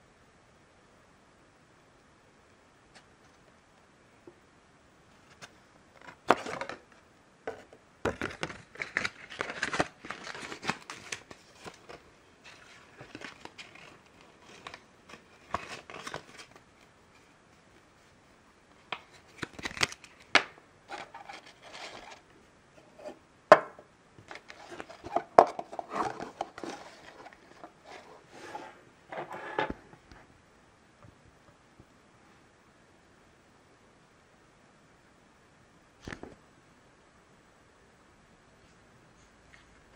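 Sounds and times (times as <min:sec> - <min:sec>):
paper rustling and crinkling: 0:07.5 - 0:18.2, 0:18.9 - 0:22.3, 0:24.2 - 0:29.4.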